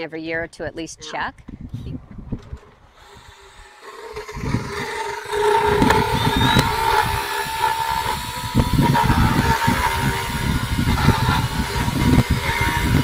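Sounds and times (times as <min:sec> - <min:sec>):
drill motor whine: 0:02.9 - 0:13.0
rough grinding of teeth: 0:02.9 - 0:13.0.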